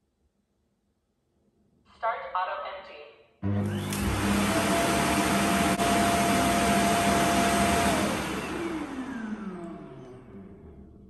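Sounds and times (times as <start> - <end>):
suction motor whining: 3.4 - 10.5.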